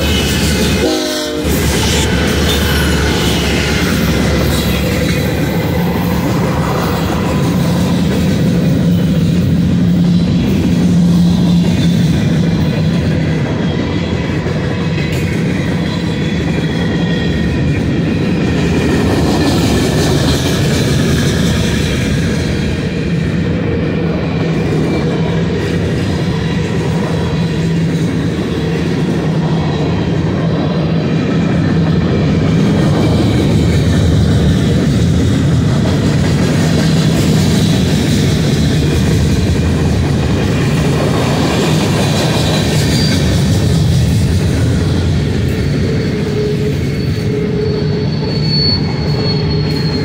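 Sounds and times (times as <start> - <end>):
train wheels rumbling on rails: 0.0 - 50.0
high wheel squeal: 41.3 - 44.0, 44.9 - 50.0.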